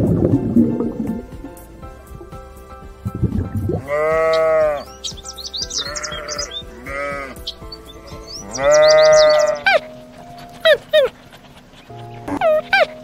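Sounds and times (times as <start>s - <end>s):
background music: 0.0s - 13.0s
sheep bleating: 3.8s - 4.9s, 5.6s - 9.9s.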